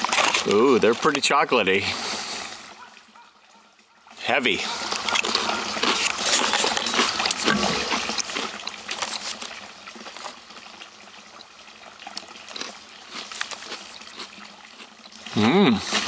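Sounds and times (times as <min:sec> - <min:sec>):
chip crunching: 0:00.0 - 0:01.3, 0:04.8 - 0:10.6, 0:12.1 - 0:16.0
paper cup rustling and crinkling: 0:00.0 - 0:01.4, 0:04.7 - 0:10.8
running water trickling: 0:00.0 - 0:16.0.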